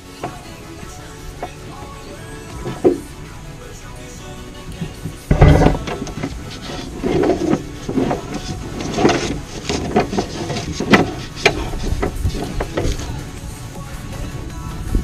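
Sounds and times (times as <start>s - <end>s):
cable scraping against sheet metal: 1.3s - 3.3s, 4.7s - 13.3s.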